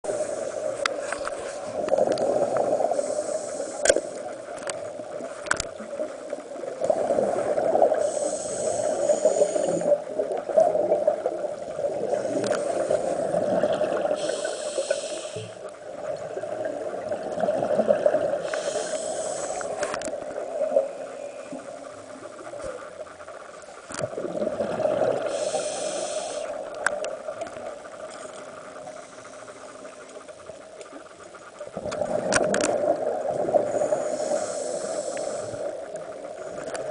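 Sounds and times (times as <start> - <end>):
underwater low hum: 0.0 - 36.9
bubbles rushing: 24.1 - 25.2.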